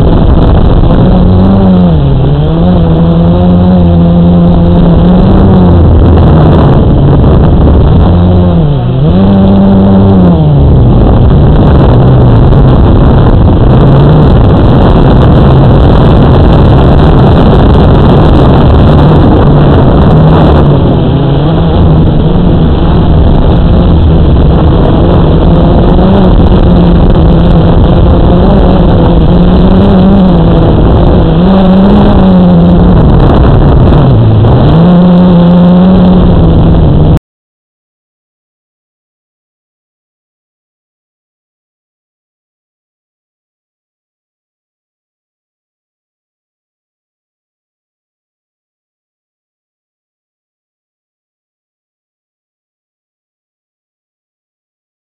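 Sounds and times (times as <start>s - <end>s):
model airplane motor and propeller: 0.0s - 37.2s
rushing air noise: 0.0s - 37.2s.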